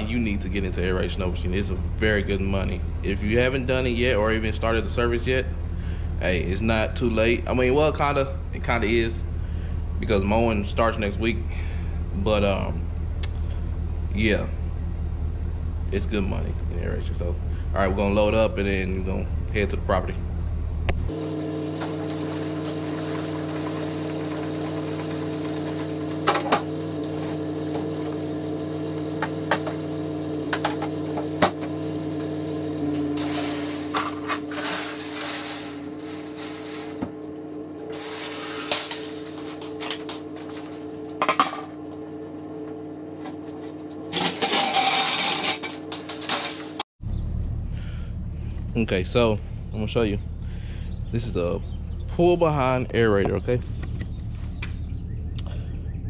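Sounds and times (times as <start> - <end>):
steady low hum: 0.0 - 56.0
metal scraping and clatter: 33.1 - 41.6, 43.2 - 46.8.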